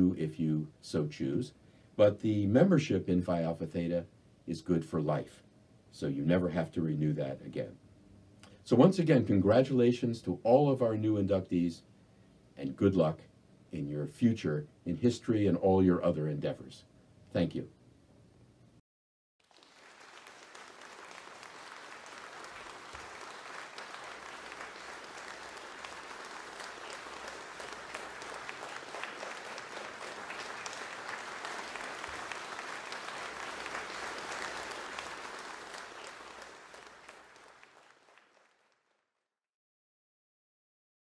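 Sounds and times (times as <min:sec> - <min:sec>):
applause: 0:19.4 - 0:39.3.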